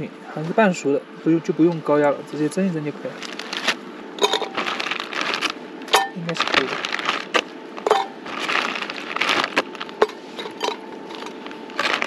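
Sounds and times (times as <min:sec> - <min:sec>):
plastic bag rustling: 0:03.1 - 0:12.0.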